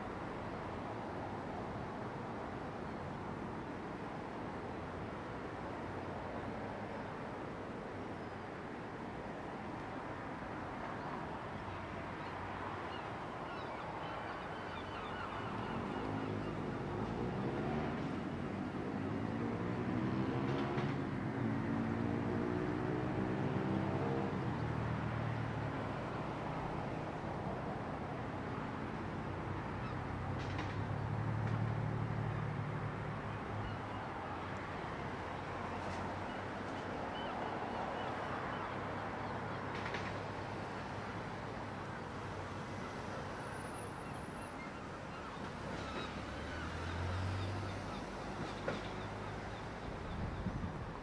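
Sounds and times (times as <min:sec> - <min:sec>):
outdoor background rush: 0:00.0 - 0:51.0
faint bird calls: 0:12.9 - 0:17.0.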